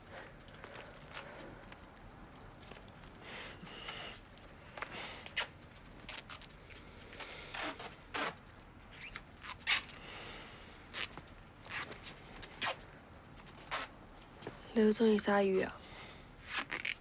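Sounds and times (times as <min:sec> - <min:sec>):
close breathing: 0:03.2 - 0:04.2.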